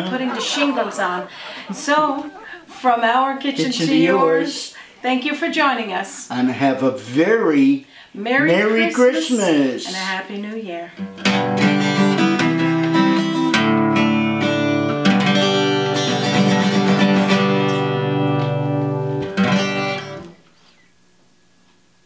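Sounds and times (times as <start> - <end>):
acoustic guitar strumming: 8.4 - 10.0, 11.0 - 20.4.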